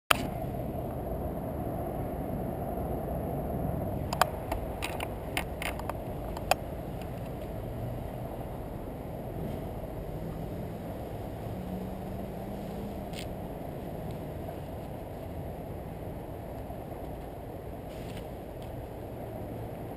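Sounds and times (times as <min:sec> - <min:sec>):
low rumble: 0:00.1 - 0:19.9
sharp clicks and knocks: 0:04.1 - 0:07.5.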